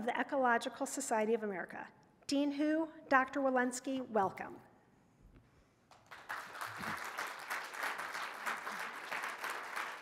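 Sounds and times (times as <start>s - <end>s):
audience applauding: 5.9s - 10.0s.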